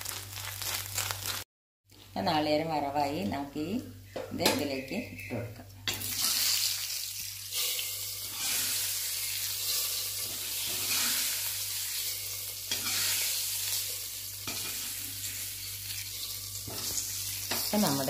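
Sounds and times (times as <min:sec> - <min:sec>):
spices sizzling in hot oil: 0:00.0 - 0:01.4, 0:05.8 - 0:18.0.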